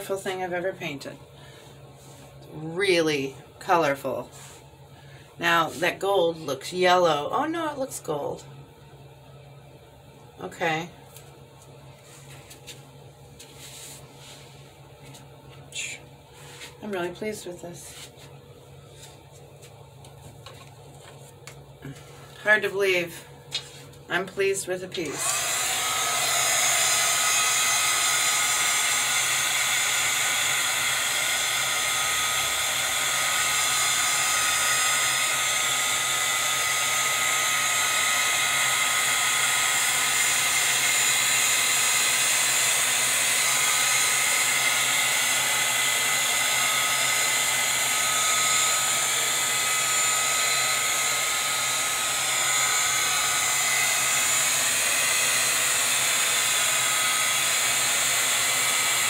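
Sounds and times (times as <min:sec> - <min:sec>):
heat gun blowing air: 0:25.0 - 0:59.0.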